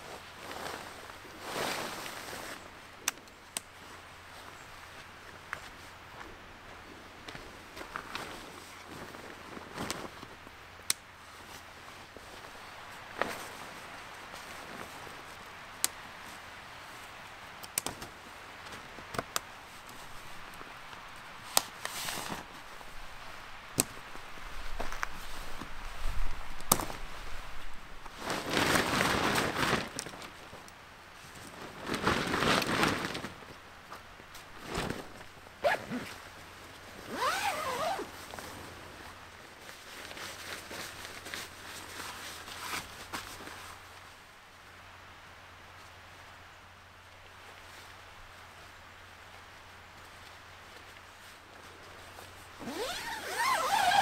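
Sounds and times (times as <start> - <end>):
fabric rustling: 0.0 - 2.7, 7.3 - 10.6, 11.2 - 15.4, 21.8 - 23.5, 24.4 - 30.6, 31.2 - 44.0, 50.8 - 54.0
tent clips clicking: 10.8 - 11.1, 17.6 - 18.1, 21.4 - 22.3, 23.8 - 24.0, 26.6 - 27.0, 37.1 - 38.0
zipper pulls: 35.6 - 36.2, 37.0 - 38.1, 52.6 - 54.0.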